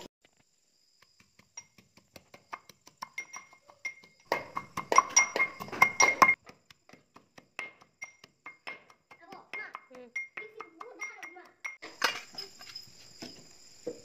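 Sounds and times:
wooden pestle pounding in metal pot: 1.0 - 11.8.

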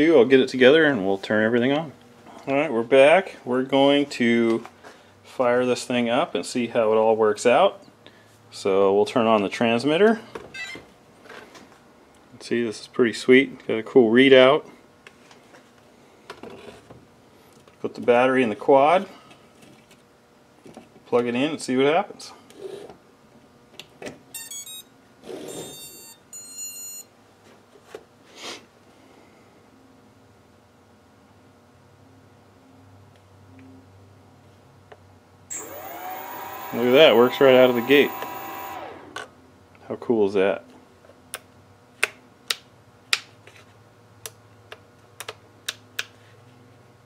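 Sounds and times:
motor power-up beeps: 25.5 - 27.0, 35.5 - 39.3.

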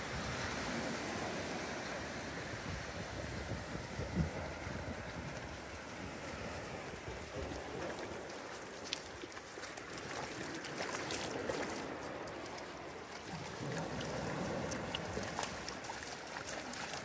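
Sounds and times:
surf washing over sand: 0.0 - 17.0
dog digging in wet sand: 7.6 - 17.0.

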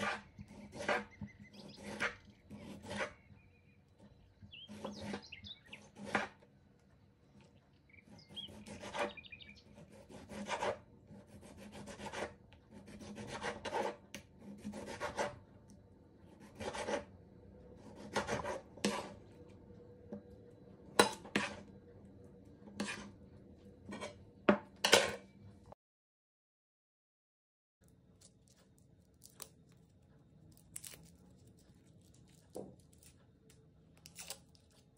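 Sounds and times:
knife slicing tomato: 0.0 - 3.2, 8.1 - 15.4, 17.8 - 19.2.

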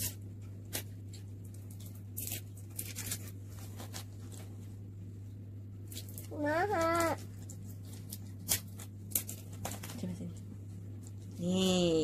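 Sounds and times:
plastic wrappers crinkling: 0.0 - 4.7, 5.8 - 11.6
steady low hum: 0.0 - 12.0.

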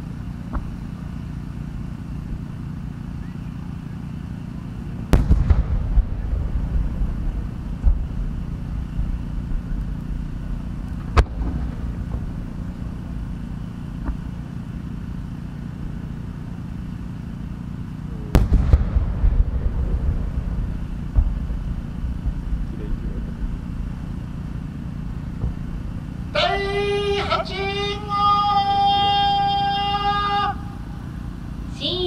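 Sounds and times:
low background rumble: 0.0 - 32.0
sharp firework crack: 5.1 - 14.4, 18.3 - 26.3
firework shells booming: 5.1 - 15.2, 18.3 - 26.3.

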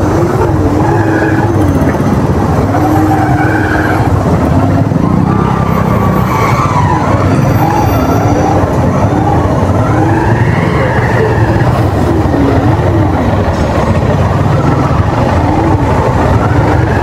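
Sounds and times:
motorcycle engine revving: 0.0 - 17.0
steady low rumble: 7.0 - 17.0.

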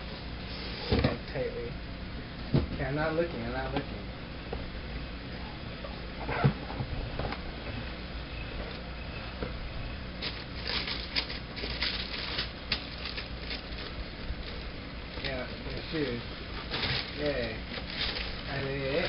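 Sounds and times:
tissue paper rustling: 10.2 - 14.7, 15.3 - 19.0.

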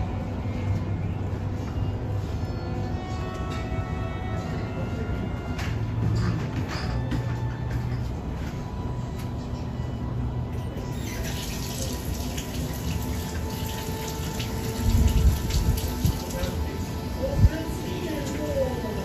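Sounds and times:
faint music: 0.0 - 19.0
running water: 11.0 - 19.0
rain falling: 11.3 - 19.0.

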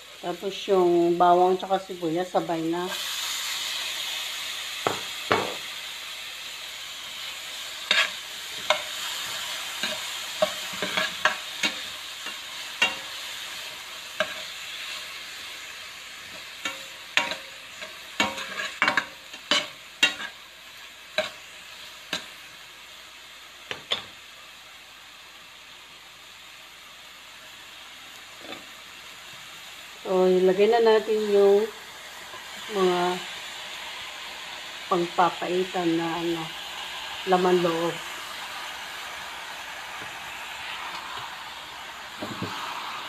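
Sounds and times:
vegetables sizzling in hot oil: 0.0 - 43.0
spatula clacking and scraping pan: 7.8 - 13.3, 14.2 - 15.0, 16.2 - 20.4, 21.1 - 22.4.

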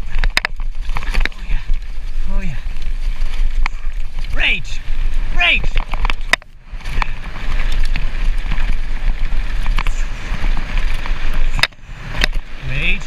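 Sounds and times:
bike clicking and knocking: 0.0 - 1.5, 5.7 - 10.0
wind rush on microphone: 0.0 - 13.0.

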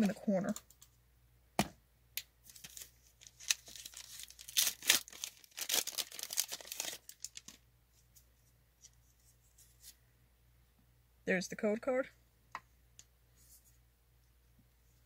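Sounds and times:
foil wrapper tearing and crinkling: 2.5 - 7.6.

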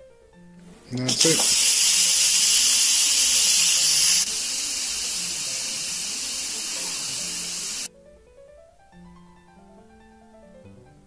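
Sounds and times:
pressure cooker steam hissing: 0.9 - 7.9.

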